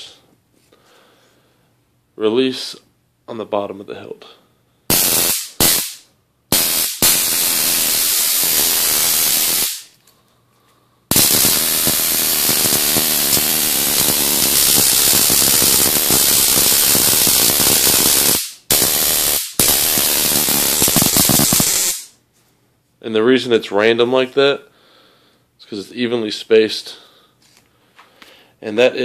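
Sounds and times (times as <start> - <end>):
stun gun electric crackle: 4.9 - 10.0, 11.1 - 22.2.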